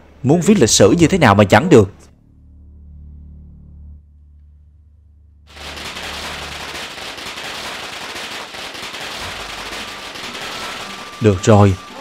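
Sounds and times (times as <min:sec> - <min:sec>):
low musical drone: 0:02.1 - 0:05.5
firecrackers crackling: 0:05.5 - 0:12.0.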